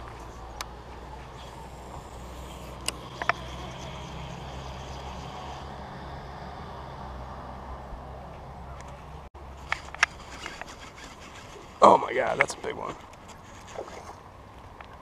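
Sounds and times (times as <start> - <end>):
distant motor humming: 0.0 - 14.4
fishing reel clicks: 1.3 - 5.7.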